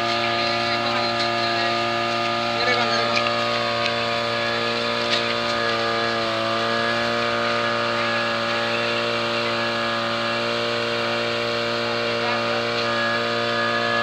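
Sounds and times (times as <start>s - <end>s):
engine-driven water pump running: 0.0s - 14.0s.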